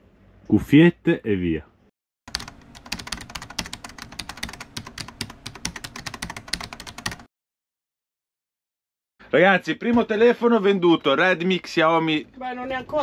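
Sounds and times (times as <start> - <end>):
keyboard typing: 2.3 - 7.3.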